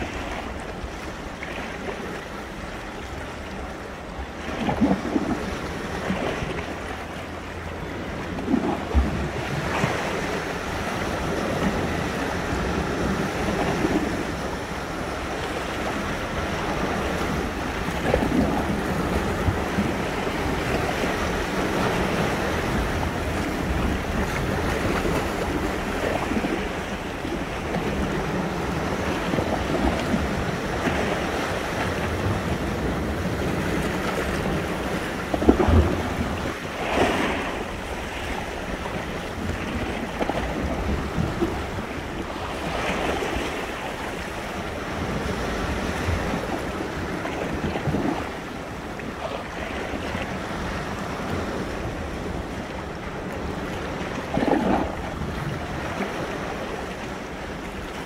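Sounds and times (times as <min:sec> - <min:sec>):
sea waves breaking: 0:00.0 - 0:58.0
wind buffeting microphone: 0:00.0 - 0:58.0.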